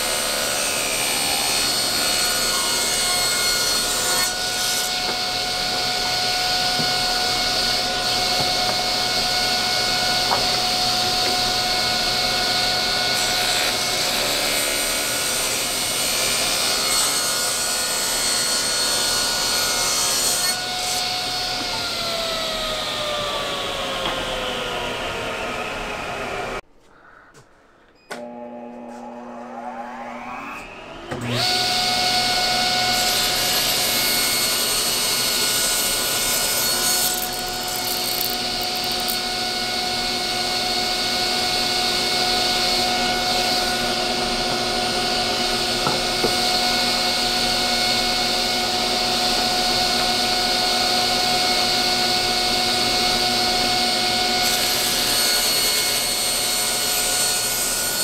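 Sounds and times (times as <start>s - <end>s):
table saw motor whine: 0.0s - 26.6s, 28.2s - 58.0s
dust collector running: 31.1s - 55.1s.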